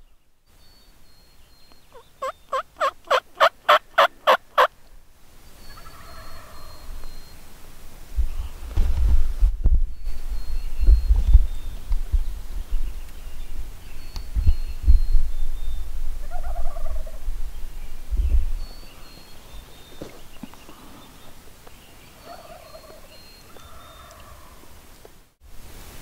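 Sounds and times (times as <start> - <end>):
turkeys gobbling: 1.9 - 4.7, 5.7 - 6.9, 16.2 - 17.2, 22.1 - 24.8
wind rumble on microphone: 8.0 - 19.7.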